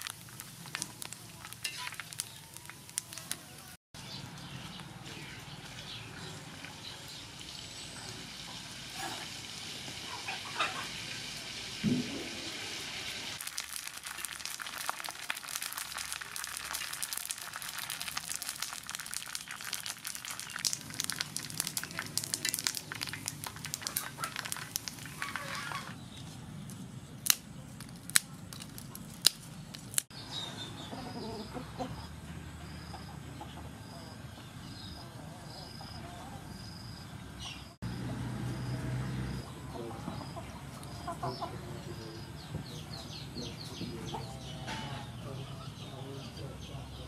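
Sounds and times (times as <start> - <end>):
pork skin crackling in hot oil: 0.0 - 3.8, 6.4 - 26.0, 26.6 - 30.2
sharp snaps: 27.2 - 30.1.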